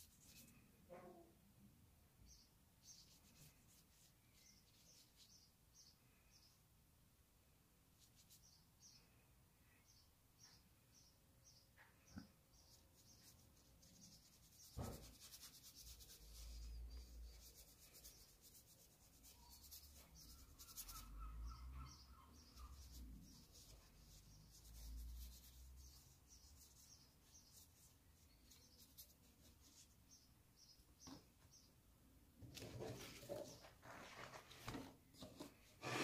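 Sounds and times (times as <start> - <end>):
paintbrush rubbing on paper: 0.0 - 0.7, 2.8 - 5.5, 12.7 - 30.2, 32.6 - 36.0.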